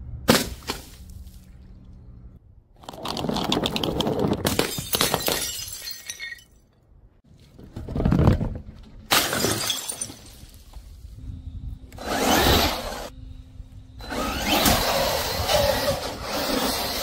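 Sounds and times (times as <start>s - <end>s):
bottles smashing on tiles: 3.3s - 6.8s, 9.1s - 10.5s.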